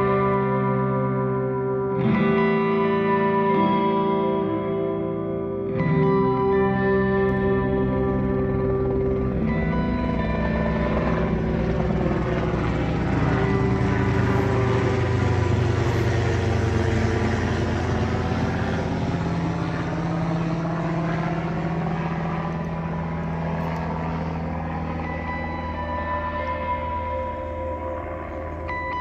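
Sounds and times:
aircraft engine drone: 0:00.0 - 0:29.0.

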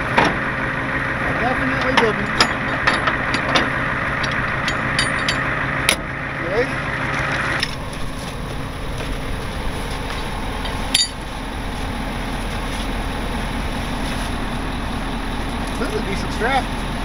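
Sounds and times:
truck engine idling: 0:00.0 - 0:17.0
sharp metal clink: 0:02.3 - 0:03.5, 0:04.2 - 0:05.5, 0:10.9 - 0:11.2.

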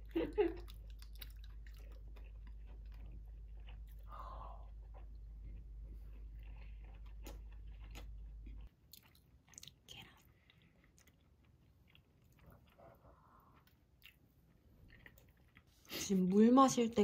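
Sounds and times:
close-up chewing: 0:00.1 - 0:16.0.

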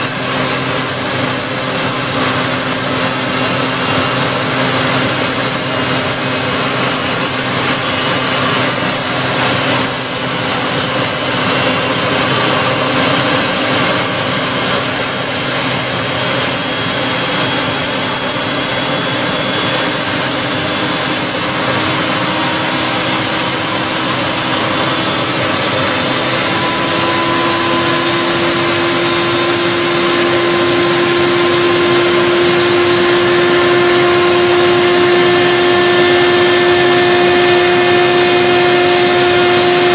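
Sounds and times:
jet engine turbine whine: 0:00.0 - 0:39.9
leaf blower blowing air: 0:00.0 - 0:39.9.

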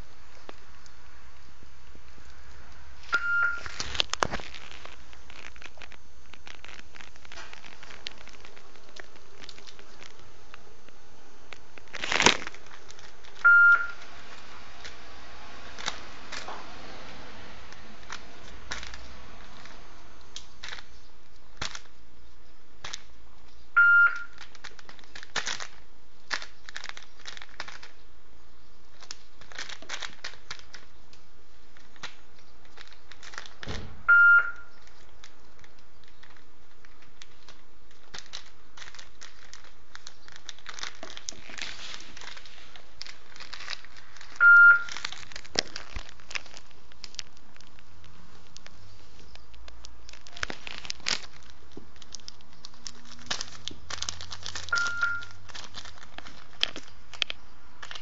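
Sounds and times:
basket crackling and clicking: 0:00.0 - 0:58.0
high beep: 0:03.2 - 0:03.6, 0:13.5 - 0:14.0, 0:23.8 - 0:24.3, 0:34.1 - 0:34.7, 0:44.4 - 0:44.9, 0:54.8 - 0:55.3.

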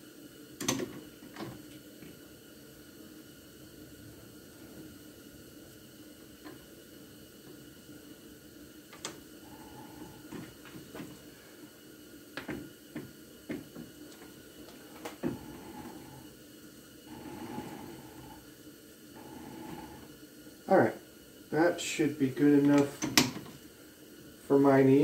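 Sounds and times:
faint steady hum: 0:00.0 - 0:25.0
lathe chuck jaws clicking and knocking: 0:00.6 - 0:01.6, 0:22.6 - 0:23.5.

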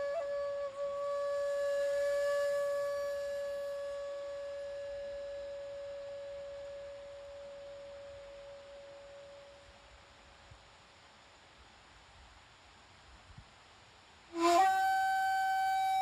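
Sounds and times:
bamboo flute long note: 0:00.0 - 0:10.2, 0:14.3 - 0:16.0.

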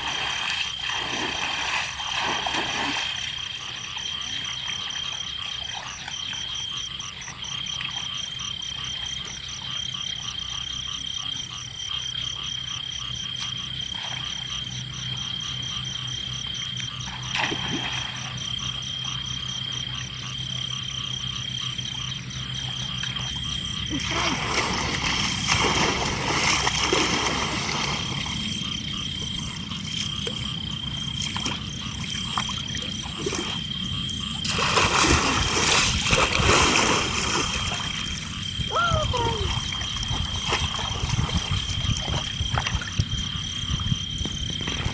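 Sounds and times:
water splashing: 0:00.0 - 0:06.5, 0:17.1 - 0:18.5, 0:22.6 - 0:33.7, 0:34.3 - 0:43.2
frogs calling: 0:00.0 - 0:44.9.

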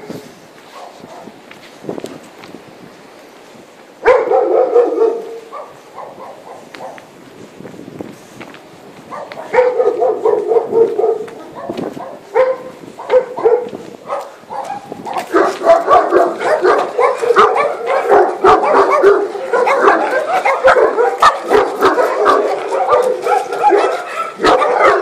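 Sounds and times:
dog barking: 0:00.7 - 0:01.3, 0:04.0 - 0:07.0, 0:09.1 - 0:25.0.

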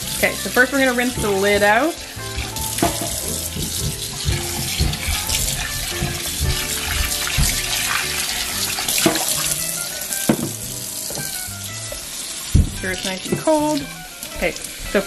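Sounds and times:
tap water running into sink: 0:00.0 - 0:15.0
plastic lid knocking: 0:10.3 - 0:11.3.

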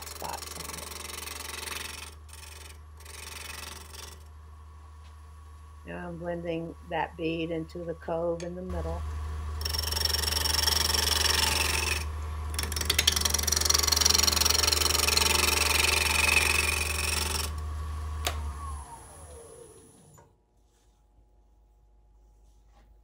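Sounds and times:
wood lathe motor hum: 0:00.0 - 0:04.4, 0:08.7 - 0:20.2.

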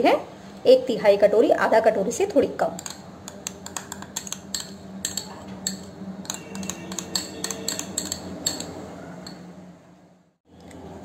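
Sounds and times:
metal spoon scraping glass bowl: 0:03.7 - 0:09.5.

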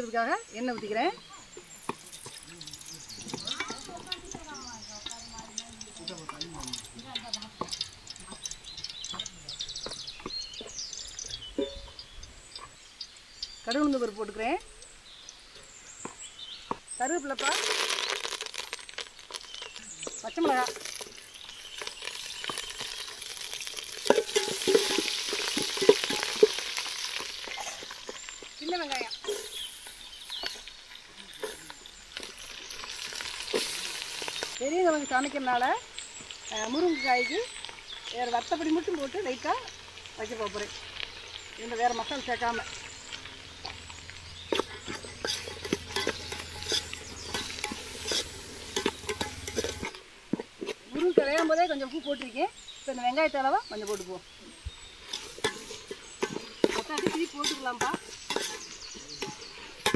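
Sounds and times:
spices sizzling in hot oil: 0:00.0 - 0:59.9
metal spoon scraping a pan: 0:20.4 - 0:36.8, 0:37.5 - 0:51.5, 0:54.8 - 0:59.9.

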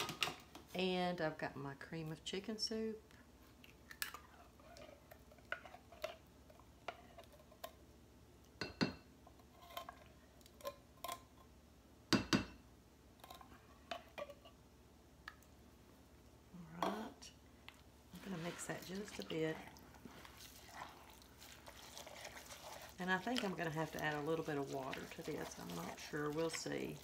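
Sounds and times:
spatula scraping a metal can: 0:20.2 - 0:27.0.

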